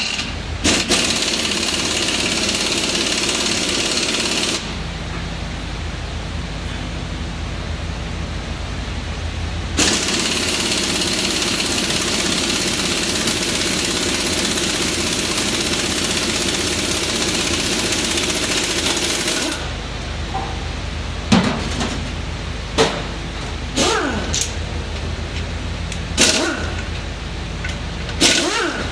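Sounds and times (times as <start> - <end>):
impact wrench rattling: 0.0 - 4.6, 9.8 - 19.6, 26.2 - 27.0, 27.6 - 28.9.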